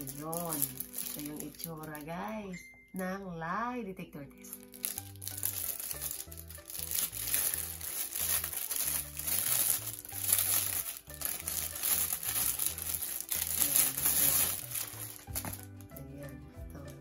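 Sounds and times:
packaging crinkling: 0.0 - 2.2, 4.5 - 16.0.

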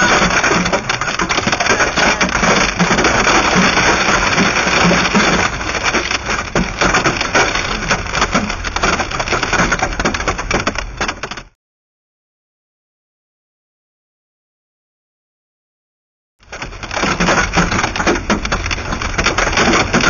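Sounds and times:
hail pelting a car roof: 0.0 - 11.6, 16.4 - 20.0.

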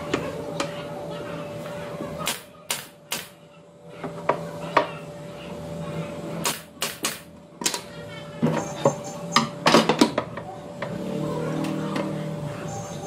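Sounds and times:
steady hum: 0.0 - 13.0
pneumatic nail gun firing: 2.2 - 3.4, 6.4 - 7.3.

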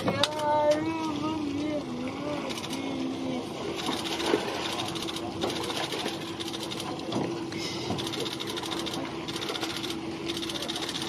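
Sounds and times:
small motor ticking and humming: 0.2 - 5.7, 7.9 - 11.0.

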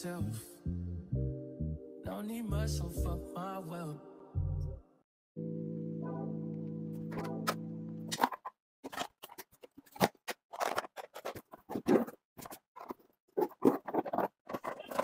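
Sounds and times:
plastic containers and bags handled: 8.1 - 15.0.

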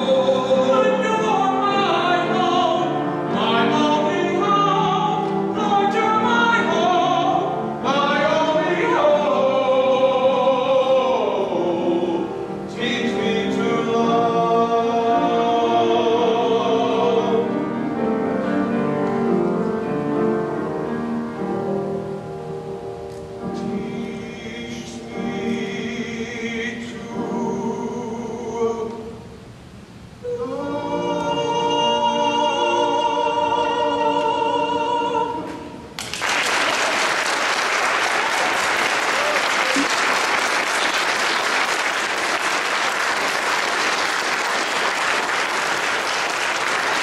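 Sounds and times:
two men singing: 0.0 - 17.6
congregation applauding: 36.0 - 47.0.

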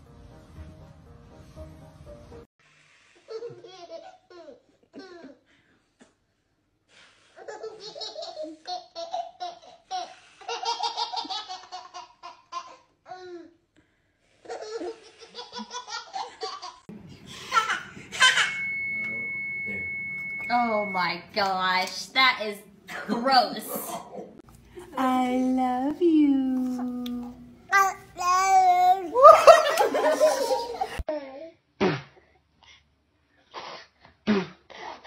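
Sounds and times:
baby laughing: 14.4 - 18.5
steady high tone: 17.3 - 22.2.

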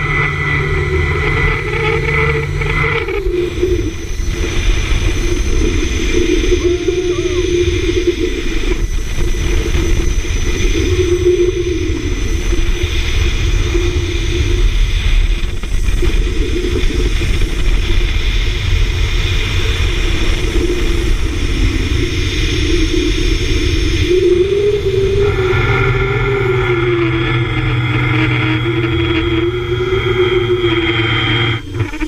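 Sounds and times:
wind rumble on microphone: 0.0 - 32.0
pulleys rolling on steel cable: 24.8 - 32.0.

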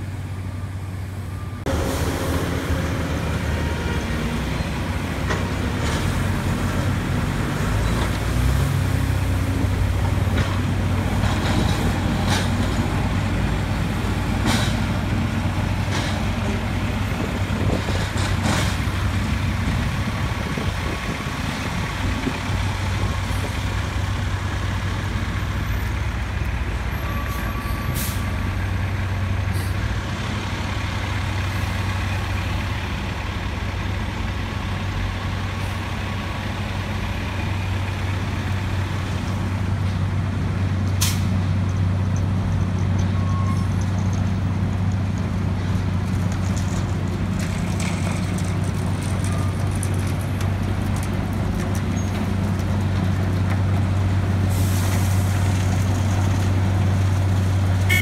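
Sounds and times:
diesel truck engine running: 0.0 - 27.2
air brake hiss: 27.6 - 28.4, 41.0 - 41.3.

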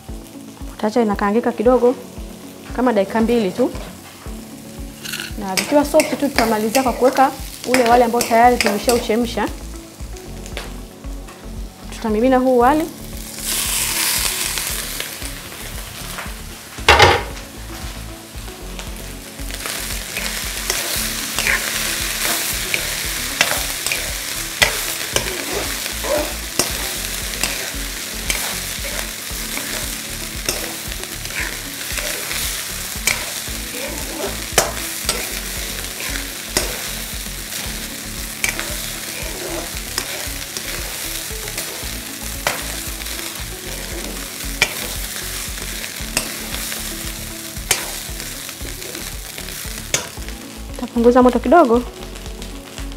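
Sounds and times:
frying hiss: 0.0 - 52.9
spatula scraping and tapping pan: 5.0 - 9.2, 19.6 - 37.0, 37.6 - 45.3, 46.0 - 46.9, 47.6 - 49.2, 49.8 - 50.2.

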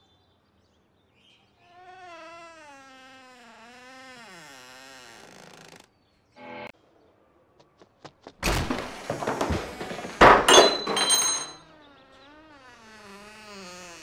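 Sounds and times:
door creaking: 1.8 - 5.9, 8.4 - 14.0
door banging with ringing: 8.4 - 11.6
door rattling and knocking: 8.4 - 11.6.

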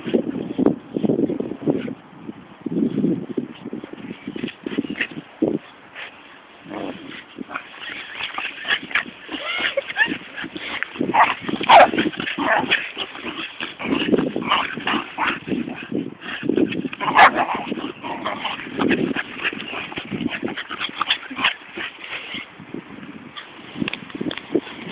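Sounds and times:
dogs yipping barking and whining: 6.8 - 15.8, 16.7 - 22.5.

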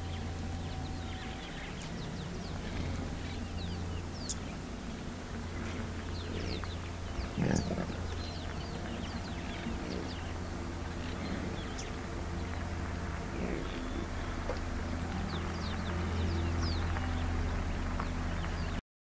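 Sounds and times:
small birds chirping: 0.0 - 18.8
steady low hum: 0.0 - 18.8.

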